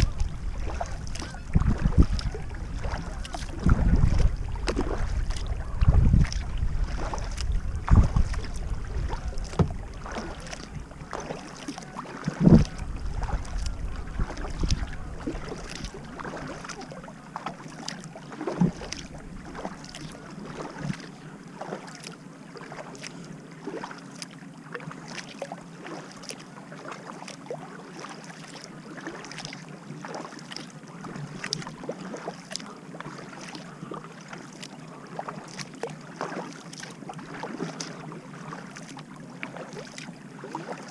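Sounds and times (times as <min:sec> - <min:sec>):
wind rumble on microphone: 0:00.0 - 0:11.3, 0:12.3 - 0:16.6
hull slipping through water: 0:00.0 - 0:40.9
paddle splashing and dripping: 0:00.0 - 0:40.9.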